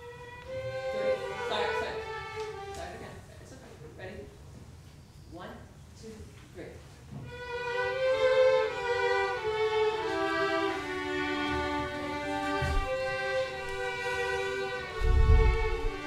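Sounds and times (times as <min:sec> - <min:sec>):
slow music with long held notes: 0:07.3 - 0:16.0.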